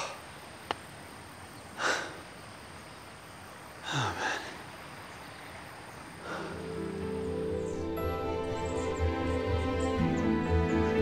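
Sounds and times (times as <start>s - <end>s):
man breathing hard: 1.8s - 2.3s, 6.2s - 6.8s.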